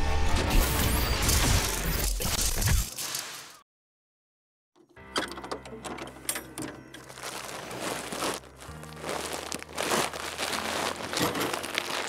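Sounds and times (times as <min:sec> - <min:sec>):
plastic sacks crinkling: 0:07.0 - 0:12.0.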